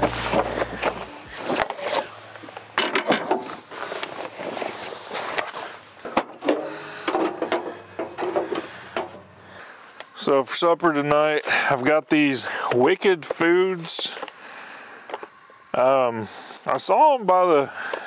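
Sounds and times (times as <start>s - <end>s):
objects being handled and set down: 0.0s - 9.3s.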